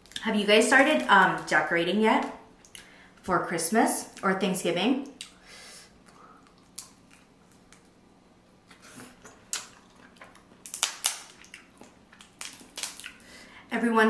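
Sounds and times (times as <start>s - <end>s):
close chewing and eating: 5.1s - 13.3s.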